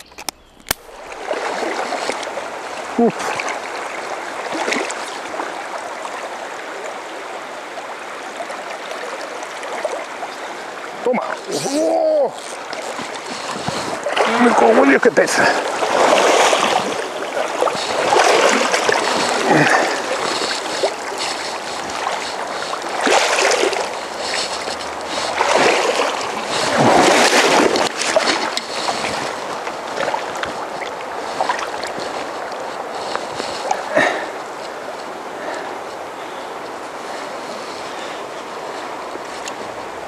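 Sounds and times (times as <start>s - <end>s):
river water rushing over stones: 0.7s - 40.0s
fish splashing in water: 0.9s - 6.2s, 12.2s - 34.3s.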